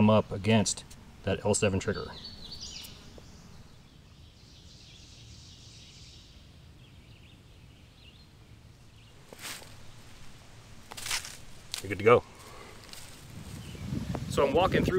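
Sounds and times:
soft high hiss: 0.0 - 14.9
bird chirps: 1.7 - 9.2.

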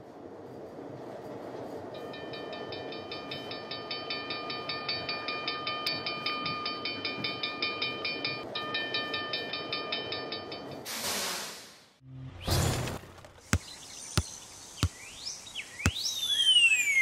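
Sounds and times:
cartoon steam train: 1.3 - 11.9.

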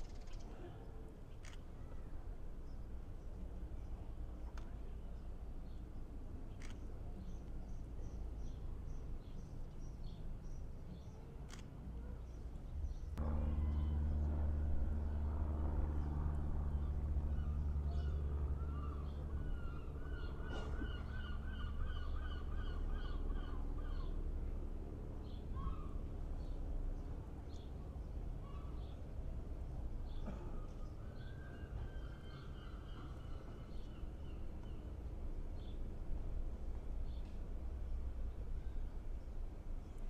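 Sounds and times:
low engine-like hum: 0.0 - 40.0
gulls calling: 16.5 - 24.2.

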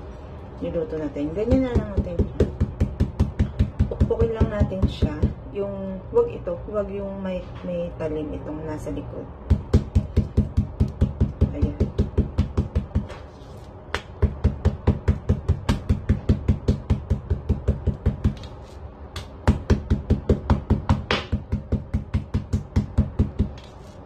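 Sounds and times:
knife spine pounding meat on board: 9.5 - 13.2, 14.0 - 18.5, 19.2 - 23.6.

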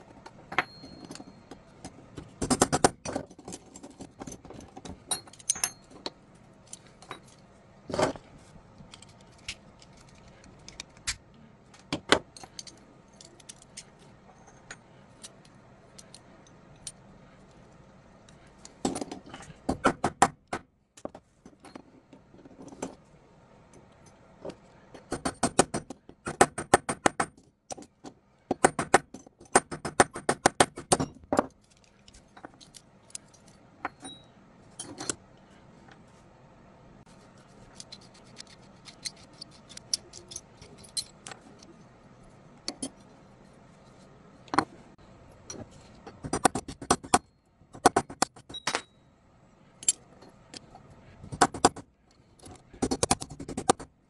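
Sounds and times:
small metal parts clicking: 0.1 - 7.5, 8.8 - 19.5, 30.8 - 35.2, 37.6 - 41.8, 49.8 - 50.8.

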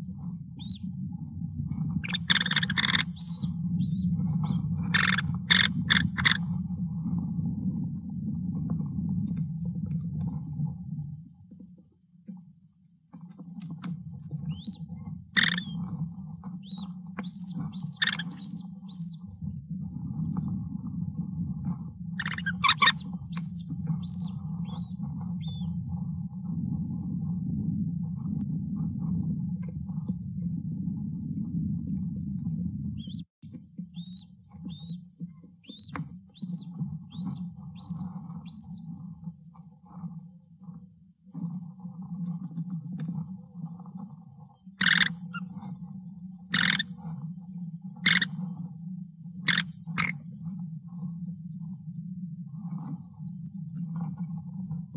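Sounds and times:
high chirping bird calls: 2.0 - 6.4, 14.5 - 14.8, 16.6 - 19.2, 22.2 - 25.7.

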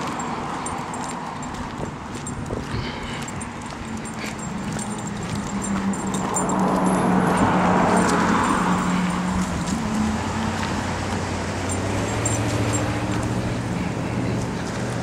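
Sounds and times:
car passing: 0.0 - 15.0
steady low traffic hum: 0.0 - 15.0.

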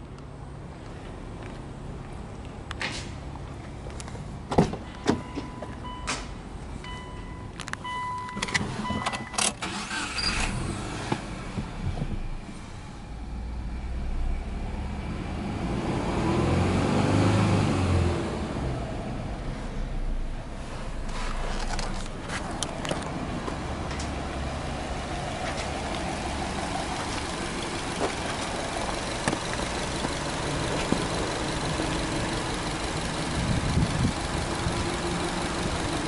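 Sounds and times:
car engine running: 20.0 - 36.0.

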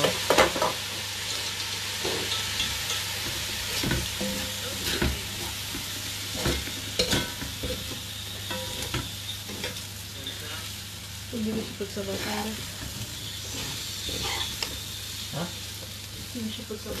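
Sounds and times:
rice sizzling in pot: 0.0 - 17.0
spoon clinking against pot: 6.4 - 7.9
metal spoon scraping pot: 12.1 - 14.8.

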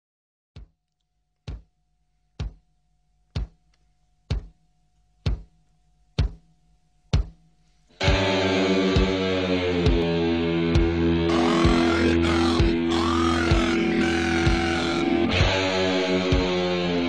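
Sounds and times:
music with held chord: 8.0 - 17.0
deep drum-like hits: 10.7 - 15.6.

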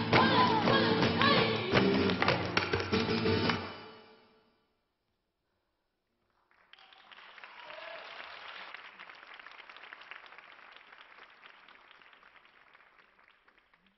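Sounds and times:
audience applauding: 6.3 - 13.9.

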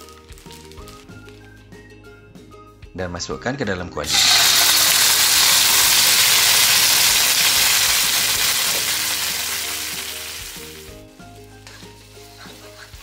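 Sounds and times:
paste sizzling in hot wok: 4.1 - 13.0.

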